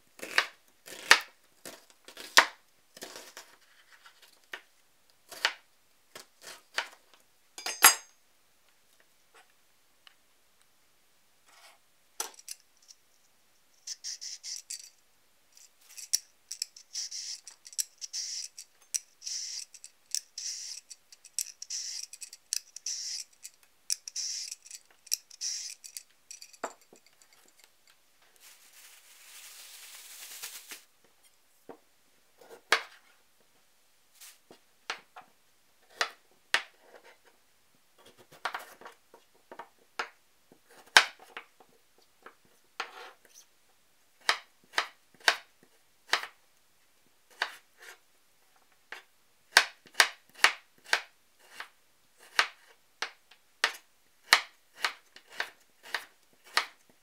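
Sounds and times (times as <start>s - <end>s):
peeler scraping carrot: 13.8s - 14.9s, 16.0s - 18.6s, 19.2s - 26.5s.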